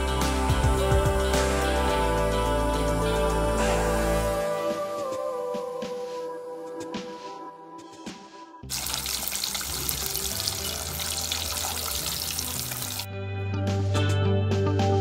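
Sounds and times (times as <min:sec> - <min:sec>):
background music: 0:00.0 - 0:15.0
fish sizzling in hot oil: 0:08.7 - 0:13.1.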